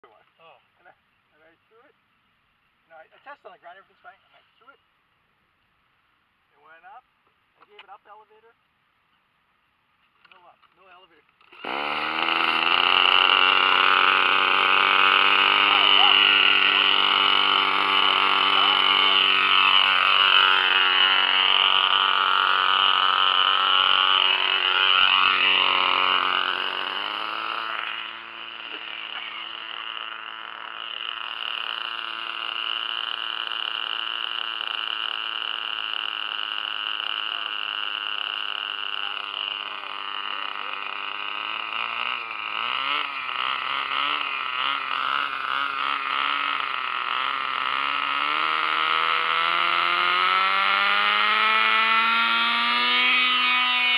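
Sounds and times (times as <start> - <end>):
model helicopter engine running: 11.4 - 53.9.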